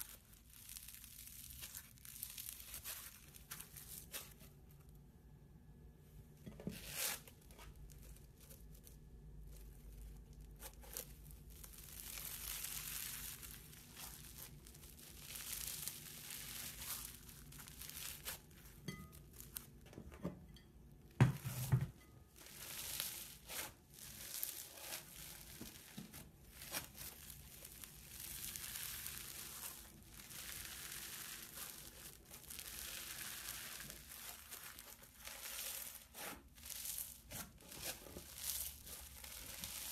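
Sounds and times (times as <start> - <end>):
foam slime crackling: 0.0 - 4.9, 6.8 - 19.8, 22.3 - 39.9
soft thump: 21.2 - 21.9.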